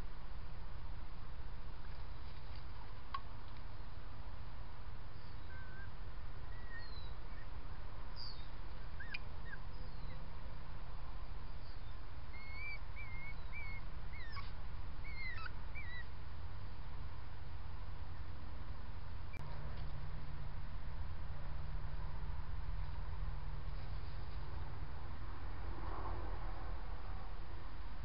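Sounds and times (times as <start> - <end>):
low background noise: 0.0 - 28.0
small birds chirping: 5.1 - 10.3, 11.3 - 16.2.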